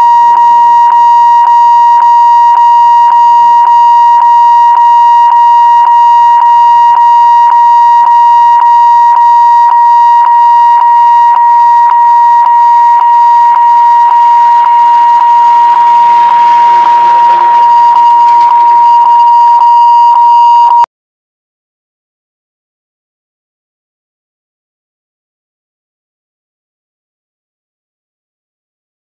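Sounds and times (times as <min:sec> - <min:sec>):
pulsing electronic warning alarm: 0:00.0 - 0:20.8.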